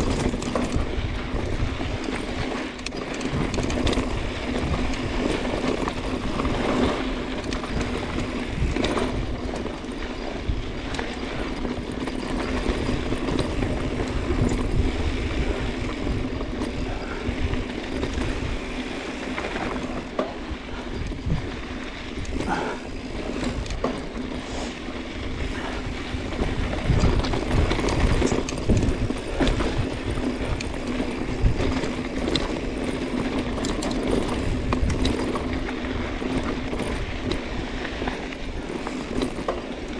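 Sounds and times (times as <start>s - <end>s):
bike rattling over bumps: 0.0s - 39.9s
bike tyres rolling over gravel: 0.0s - 39.9s
wind rumble on microphone: 0.0s - 39.9s.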